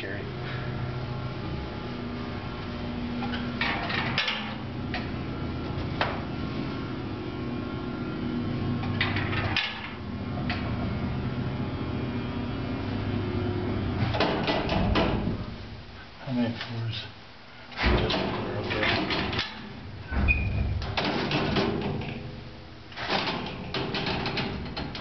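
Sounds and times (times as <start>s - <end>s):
elevator motor hum: 0.0s - 16.1s, 17.8s - 25.0s
elevator car rattling and knocking: 3.2s - 5.1s, 8.8s - 10.8s, 14.0s - 15.4s, 17.8s - 25.0s.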